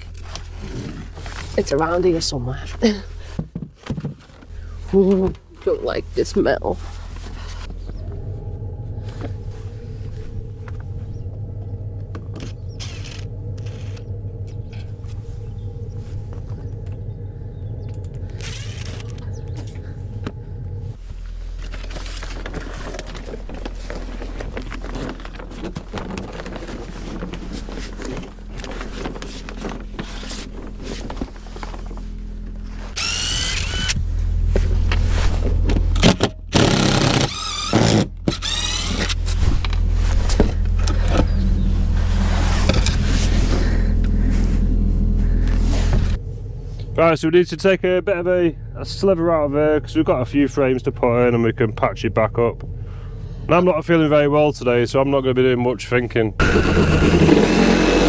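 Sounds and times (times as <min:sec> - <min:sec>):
cordless drill whirring: 0:33.0 - 0:34.0, 0:36.5 - 0:39.4, 0:56.4 - 0:58.0.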